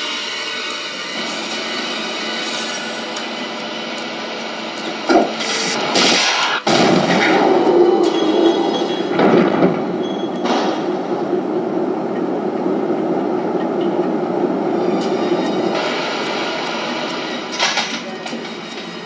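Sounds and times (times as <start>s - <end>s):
engine room machinery rumble: 0.0s - 19.0s
sharp bangs: 5.1s - 11.8s.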